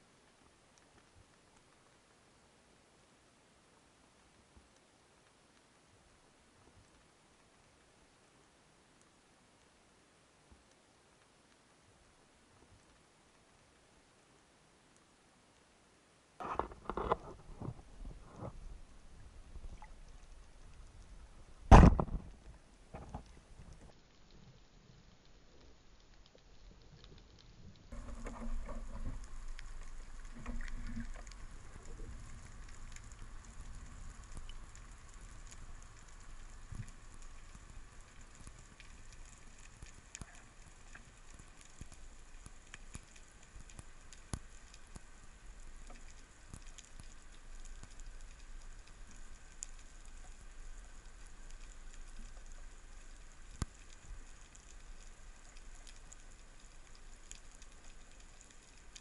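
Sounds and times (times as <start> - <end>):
underwater fizzing crackle: 0.0 - 59.0
low water rumble: 16.4 - 59.0.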